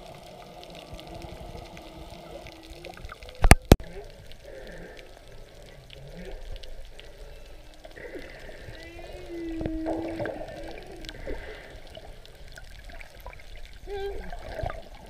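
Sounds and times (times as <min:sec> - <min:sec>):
faint underwater clicks: 0:00.0 - 0:15.0
whale song moans and squeaks: 0:07.2 - 0:11.2, 0:13.8 - 0:14.9.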